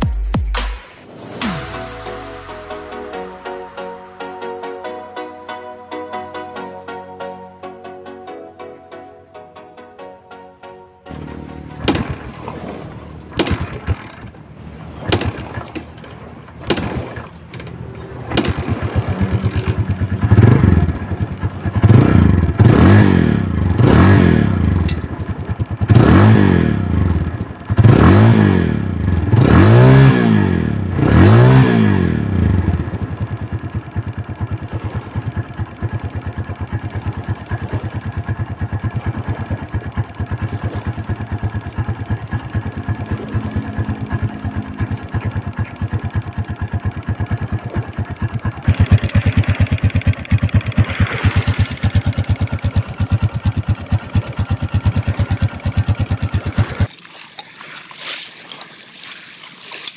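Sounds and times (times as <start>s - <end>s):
motorcycle engine revving and idling: 11.1s - 56.9s.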